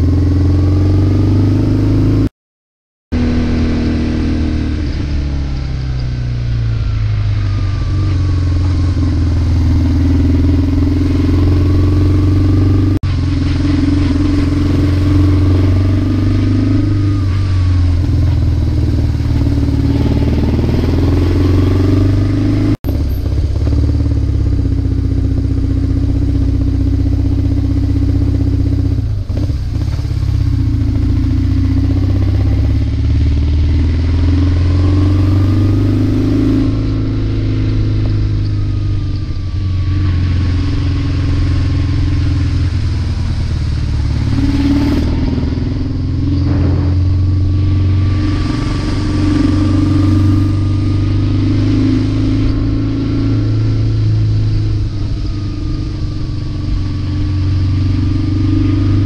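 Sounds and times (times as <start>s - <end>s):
motorcycle engine running: 0.0s - 2.3s, 3.1s - 59.0s.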